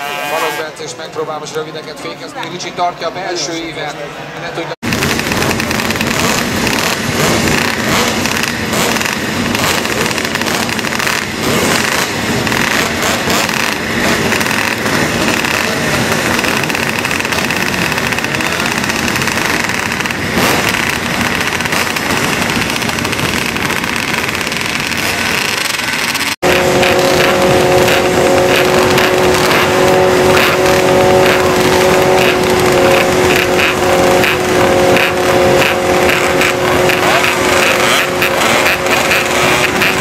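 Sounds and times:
racing motorcycle engines revving: 0:00.0 - 0:40.0.

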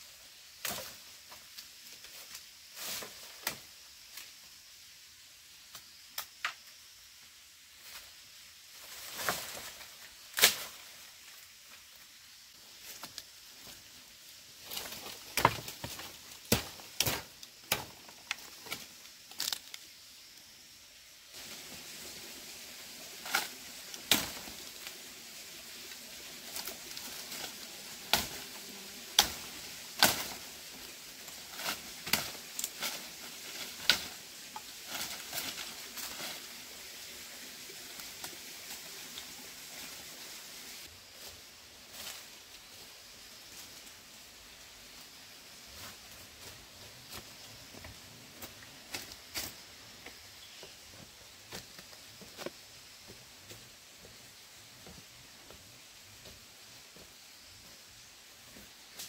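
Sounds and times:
machete chopping bamboo: 0:16.4 - 0:17.9.

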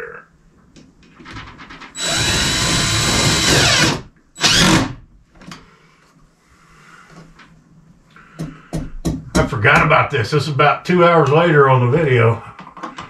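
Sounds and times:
power drill driving screw: 0:02.0 - 0:05.0.

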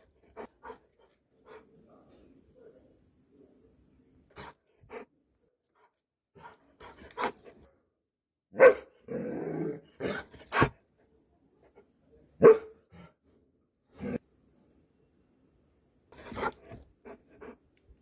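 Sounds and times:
dog barking: 0:08.5 - 0:08.9, 0:12.4 - 0:12.8.

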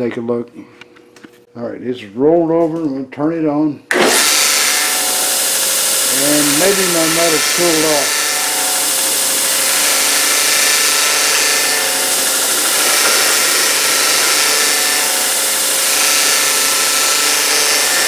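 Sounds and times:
belt grinder motor hum: 0:03.9 - 0:18.0
metal grinding on abrasive belt: 0:03.9 - 0:18.0.

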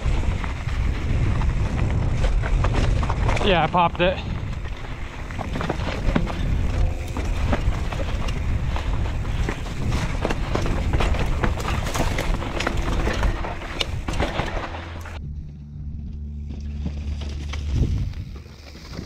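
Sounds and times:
wind on microphone: 0:00.0 - 0:03.6, 0:04.2 - 0:13.2, 0:17.6 - 0:18.5
tyres rumbling over rocks: 0:00.0 - 0:15.2, 0:16.4 - 0:19.0
bike rattling: 0:00.0 - 0:19.0
steady low hum: 0:04.2 - 0:18.4.

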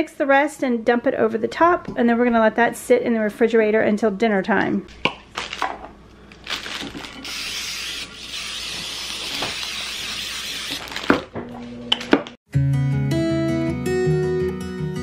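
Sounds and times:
plastic bag crinkling: 0:05.0 - 0:11.4.

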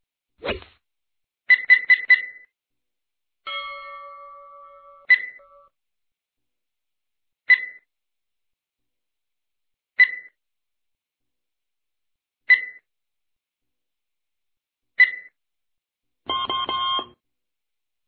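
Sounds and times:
ringing chime: 0:03.5 - 0:05.8.

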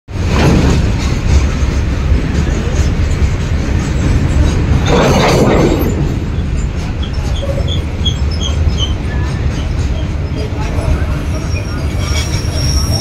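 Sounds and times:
train rumbling on tracks: 0:00.1 - 0:13.0.

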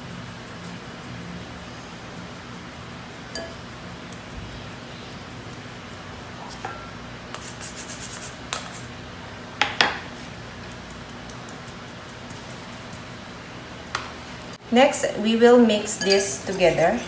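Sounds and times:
sharp clinks on glass bowl: 0:03.4 - 0:03.6, 0:16.0 - 0:16.5.

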